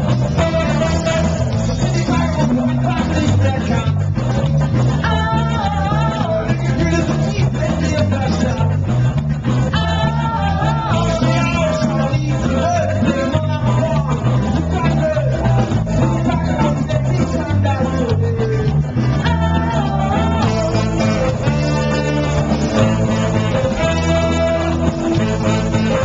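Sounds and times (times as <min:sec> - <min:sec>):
live rock band: 0:00.0 - 0:26.0
saxophones playing: 0:00.2 - 0:02.0, 0:19.6 - 0:26.0
person singing into microphone: 0:05.0 - 0:08.9, 0:09.7 - 0:26.0.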